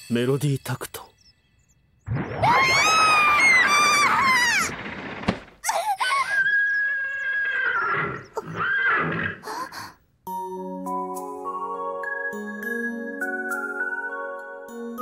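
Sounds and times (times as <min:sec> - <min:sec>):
girl screaming: 0:02.4 - 0:04.7, 0:05.6 - 0:06.5
girl crying out: 0:05.6 - 0:06.5.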